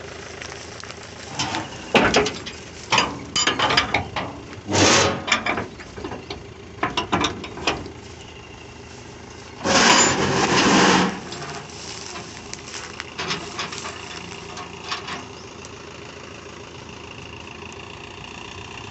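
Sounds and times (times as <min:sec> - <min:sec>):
tractor diesel engine idling: 0:00.0 - 0:18.9
metal clanks and rattles: 0:01.2 - 0:08.3, 0:09.3 - 0:15.5.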